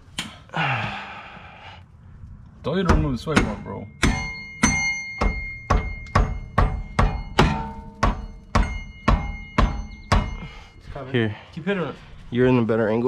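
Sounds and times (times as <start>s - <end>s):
mallet knocking on metal: 2.9s - 10.4s.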